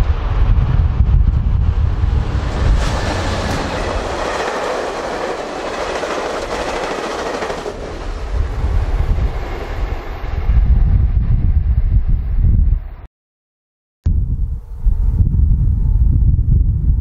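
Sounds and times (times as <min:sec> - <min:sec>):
train wheels rushing on rails: 0:00.0 - 0:10.9
wind buffeting microphone: 0:00.0 - 0:13.0, 0:14.1 - 0:17.0.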